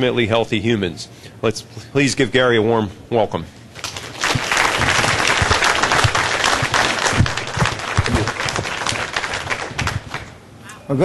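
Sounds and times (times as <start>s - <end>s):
audience applauding: 3.8s - 10.4s.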